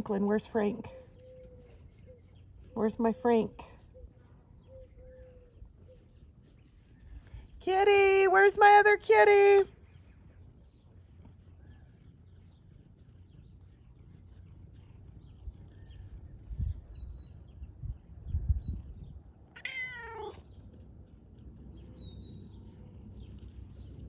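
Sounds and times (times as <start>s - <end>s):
cat meowing: 19.6s - 20.4s.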